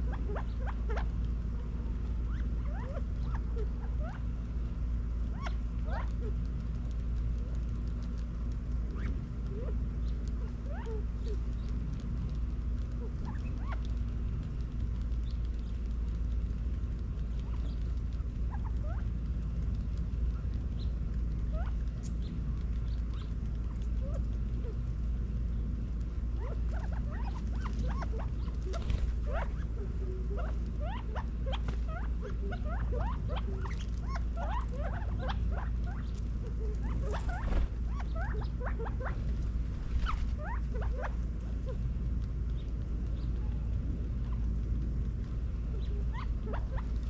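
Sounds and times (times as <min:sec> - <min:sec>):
quail chirping: 0:00.0 - 0:01.2, 0:02.2 - 0:04.2, 0:05.2 - 0:06.4, 0:08.9 - 0:11.7, 0:12.8 - 0:14.0, 0:17.3 - 0:19.1, 0:20.3 - 0:24.8, 0:26.3 - 0:41.8, 0:45.7 - 0:47.0
low rumble: 0:00.0 - 0:47.0.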